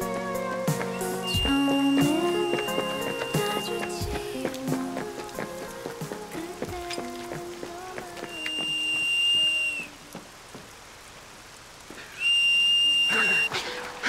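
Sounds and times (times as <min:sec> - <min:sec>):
whistle blasts: 0:00.9 - 0:03.9, 0:08.3 - 0:10.0, 0:12.1 - 0:13.5.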